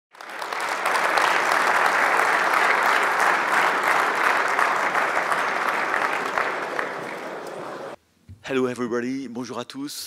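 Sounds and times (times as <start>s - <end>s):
audience applauding: 0.1s - 8.0s.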